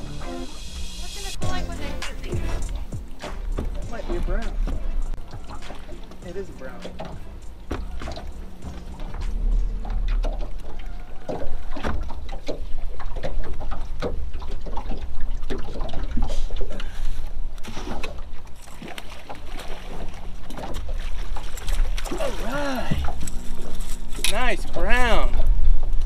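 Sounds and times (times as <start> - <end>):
steady low hum: 0.0 - 10.7
water lapping against boat hull: 1.4 - 26.0.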